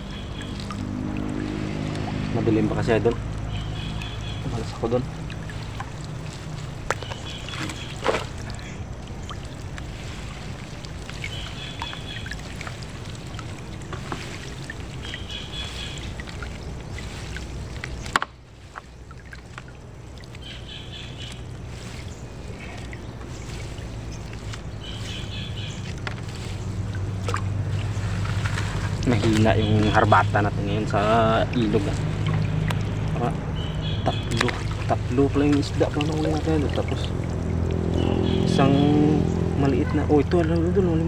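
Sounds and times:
bird chirping: 0.0 - 9.5, 11.1 - 13.4, 14.9 - 17.2, 20.4 - 40.2
steady low hum: 0.0 - 41.0
water dripping and lapping: 0.0 - 41.0.

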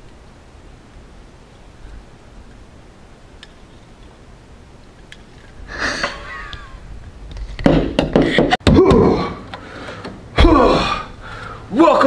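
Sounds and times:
hard knocks and clattering: 7.5 - 9.2
person exclaiming: 10.4 - 11.1.

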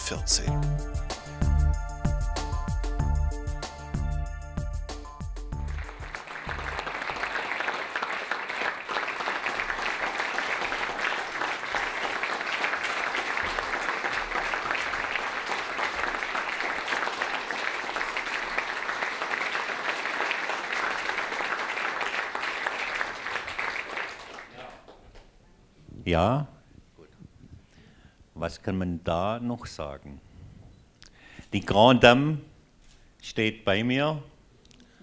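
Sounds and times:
music: 0.0 - 7.6
audience applause: 5.6 - 25.2.

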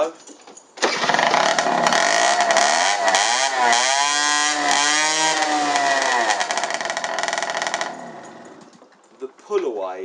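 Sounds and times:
moped engine revving: 0.8 - 8.8.

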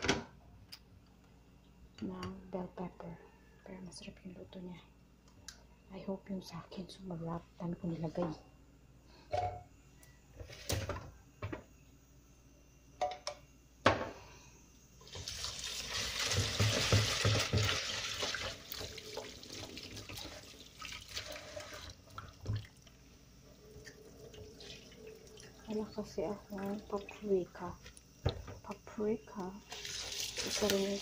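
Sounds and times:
tap water running into bucket: 15.0 - 23.0, 23.8 - 27.4, 29.6 - 31.0.

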